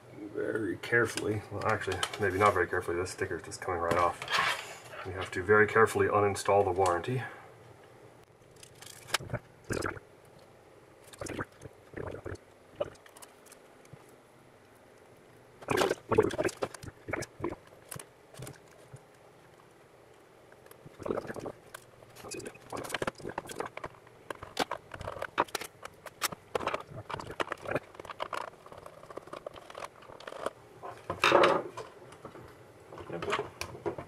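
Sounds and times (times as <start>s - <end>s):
plastic case clicks and scrapes: 22.8s - 30.6s.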